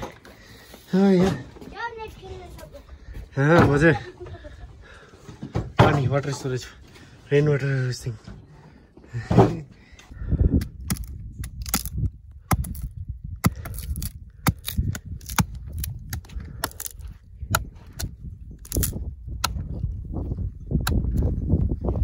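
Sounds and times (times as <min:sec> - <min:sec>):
wood fire crackling and popping: 0:10.8 - 0:12.9, 0:13.5 - 0:17.6, 0:18.6 - 0:19.0.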